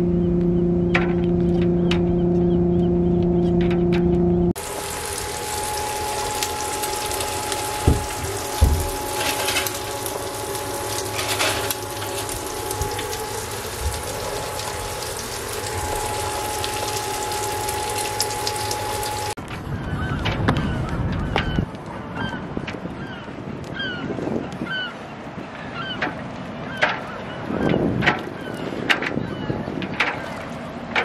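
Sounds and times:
cooktop whine: 0.0s - 19.4s
sharp knocks: 7.8s - 9.0s.

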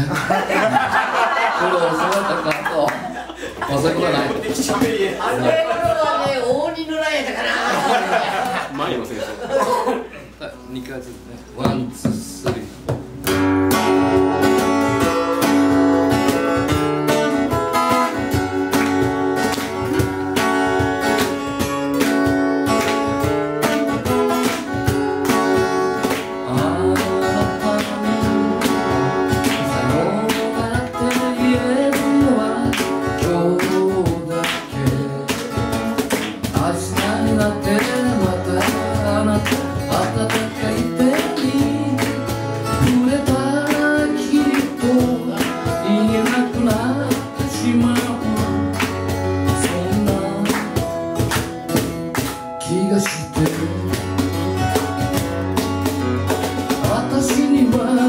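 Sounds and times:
cajon beat: 0.0s - 10.1s, 11.5s - 58.0s
acoustic guitars strumming: 0.0s - 58.0s
man singing: 26.3s - 35.8s, 36.4s - 48.8s, 49.4s - 50.9s, 51.7s - 54.4s, 56.7s - 58.0s.

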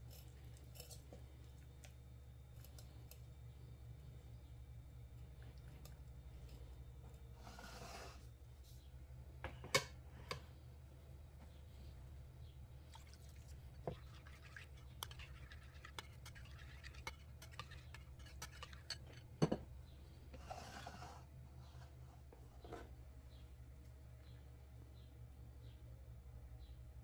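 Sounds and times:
steady low hum: 0.0s - 27.0s
spoon clinking and scraping bowl: 13.8s - 19.6s.

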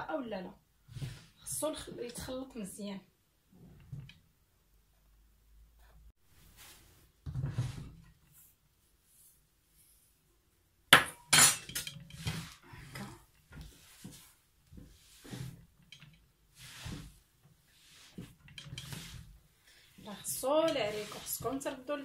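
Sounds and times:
hands scraping and rustling mix: 11.9s - 22.0s.

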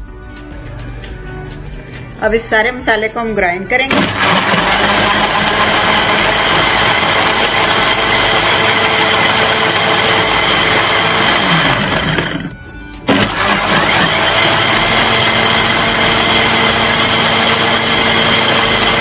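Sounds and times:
mixer grinder motor running: 3.9s - 19.0s.

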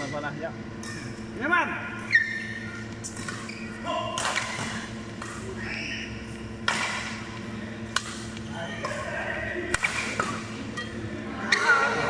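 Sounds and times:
shoes squeaking on floor: 2.1s - 3.8s
racket striking shuttlecock: 4.1s - 5.5s, 6.6s - 7.2s, 7.9s - 11.0s.

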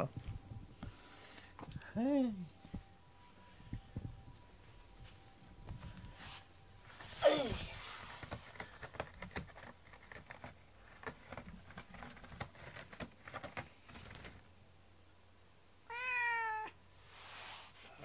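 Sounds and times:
cat claws scratching cardboard: 8.0s - 13.9s
metal collar tag jingle: 13.9s - 14.4s
cat meowing: 15.9s - 16.8s.

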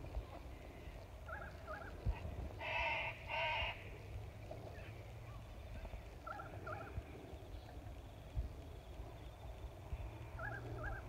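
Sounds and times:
waterbirds calling: 10.2s - 11.0s.

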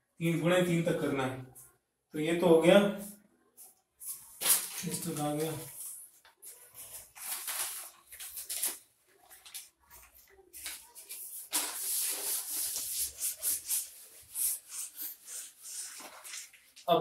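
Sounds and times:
duster rubbing whiteboard: 11.2s - 16.2s.

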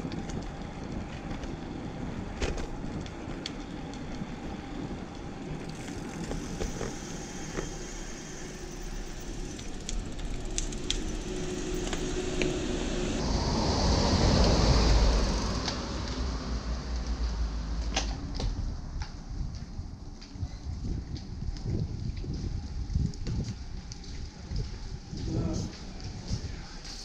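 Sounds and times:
deep road rumble: 0.0s - 27.0s
wind on microphone: 18.2s - 27.0s.

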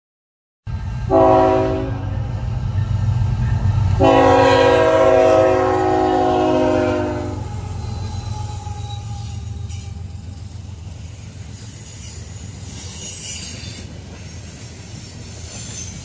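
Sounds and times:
freight locomotive horn: 1.0s - 2.4s, 4.0s - 10.6s.

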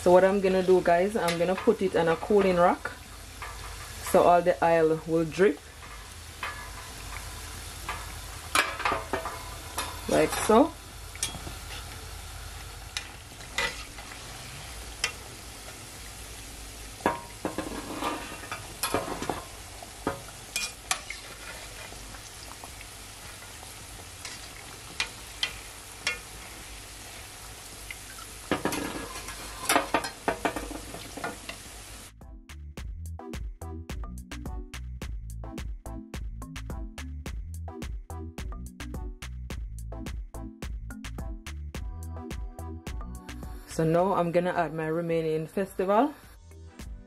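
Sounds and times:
oil sizzling in a pot: 0.0s - 32.2s
metal spatula clinking and scraping: 1.2s - 4.0s, 5.8s - 10.6s, 11.2s - 11.9s, 13.0s - 14.0s, 17.1s - 19.5s, 20.1s - 22.0s, 28.5s - 31.4s
music with a steady beat: 32.2s - 43.7s, 46.3s - 47.0s.

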